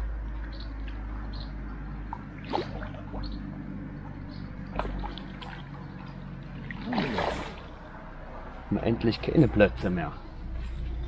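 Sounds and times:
steady low drone: 0:00.0 - 0:11.0
fish splashing in water: 0:00.8 - 0:08.2.

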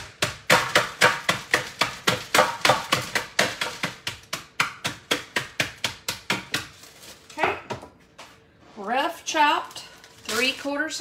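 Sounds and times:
rolling pin knocking on walnuts: 0:00.0 - 0:06.7.

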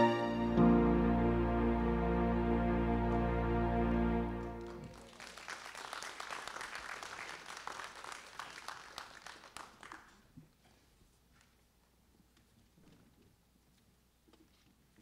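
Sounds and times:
sustained musical chord: 0:00.0 - 0:04.9
congregation clapping: 0:04.4 - 0:10.3.

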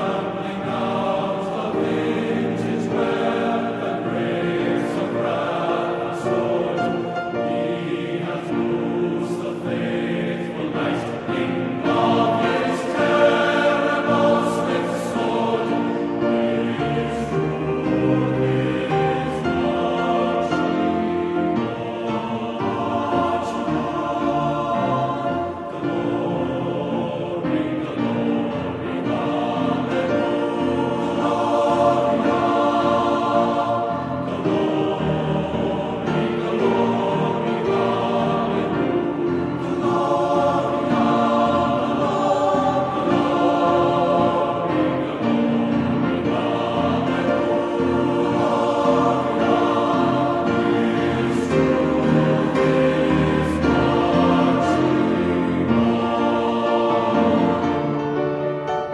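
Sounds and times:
choral singing music: 0:00.0 - 0:58.9.

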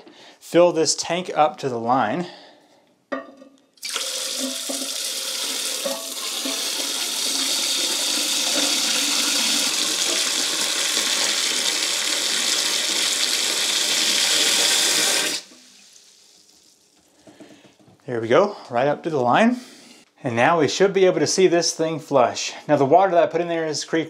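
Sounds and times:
water pouring into toilet tank: 0:03.8 - 0:17.2.

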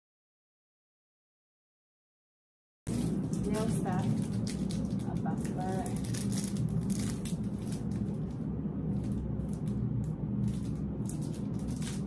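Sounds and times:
plastic wrapping crinkling: 0:02.9 - 0:12.0
steady low hum: 0:02.9 - 0:12.0.

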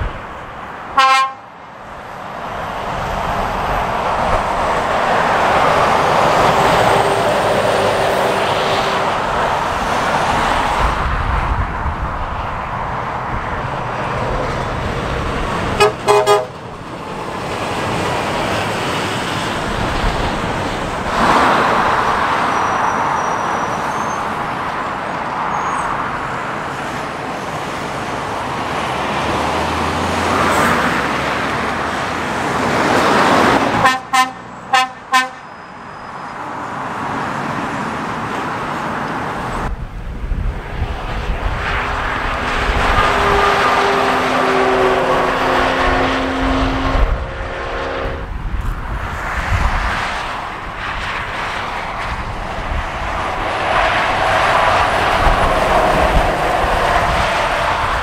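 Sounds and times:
traffic passing: 0:00.0 - 0:58.0
vehicle horn toots: 0:01.0 - 0:01.5, 0:15.8 - 0:16.6, 0:33.8 - 0:35.7, 0:43.0 - 0:48.3.

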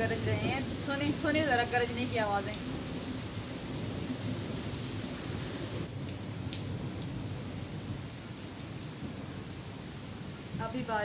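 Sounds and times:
heavy rain on paving: 0:00.0 - 0:11.0.

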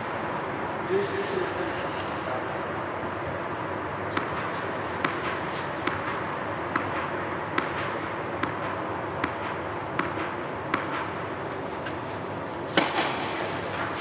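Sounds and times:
steady hum: 0:00.0 - 0:14.0
racket striking tennis ball: 0:04.1 - 0:14.0
tennis ball bouncing on court: 0:04.1 - 0:14.0.

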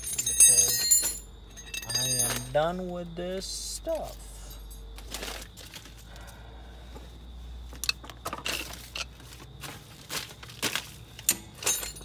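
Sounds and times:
metallic clinks of hand tools: 0:00.0 - 0:02.6.

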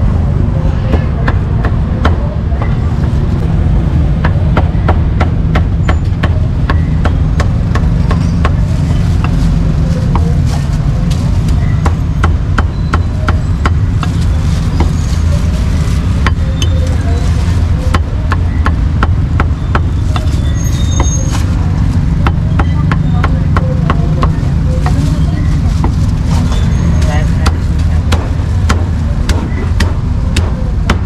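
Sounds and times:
cleaver chopping meat on wood: 0:11.8 - 0:14.1, 0:18.0 - 0:20.3, 0:27.4 - 0:31.0.

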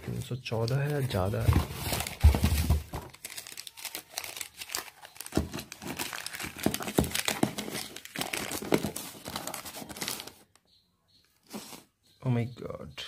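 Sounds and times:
packaging crinkling and rustling: 0:00.6 - 0:10.6.

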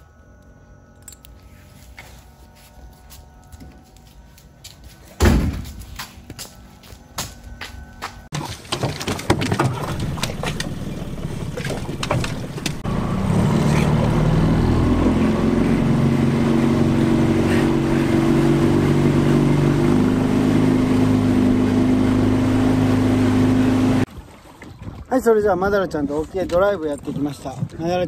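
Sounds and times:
outboard motor running: 0:08.0 - 0:28.0
knocks and clatter: 0:08.3 - 0:12.8.

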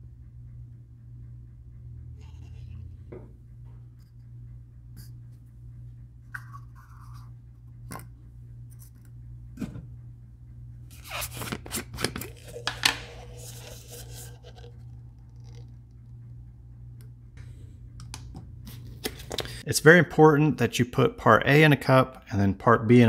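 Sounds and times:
low steady hum: 0:00.0 - 0:23.0
paper cups and bottle clicking: 0:10.9 - 0:15.7, 0:18.1 - 0:19.6.

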